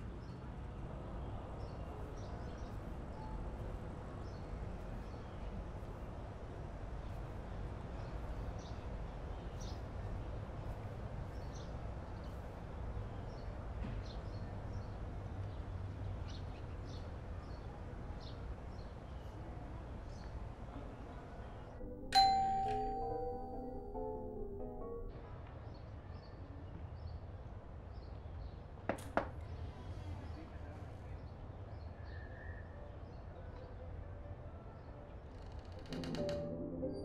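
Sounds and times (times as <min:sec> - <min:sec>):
doorbell chime: 0:21.8 - 0:25.1.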